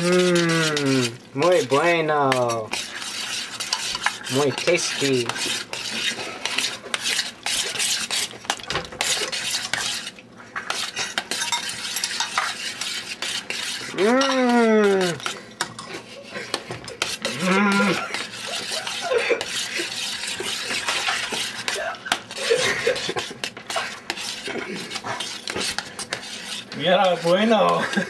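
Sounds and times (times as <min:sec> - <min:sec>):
person humming: 0:00.0 - 0:01.2, 0:13.9 - 0:15.2, 0:17.3 - 0:18.1
utensil scraping a pot: 0:00.0 - 0:28.0.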